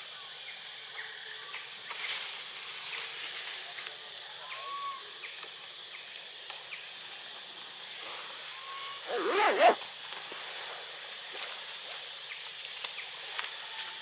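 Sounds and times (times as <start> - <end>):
background hiss: 7.8 - 13.5.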